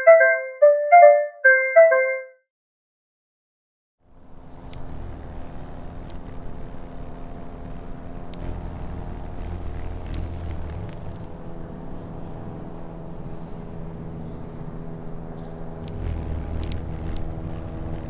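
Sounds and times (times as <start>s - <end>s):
distant traffic rumble: 4.1s - 18.0s
steady hum: 4.2s - 11.7s, 15.9s - 18.0s
sharp high ticks: 4.7s - 5.1s, 6.0s - 6.5s, 8.2s - 11.3s, 15.8s - 18.0s.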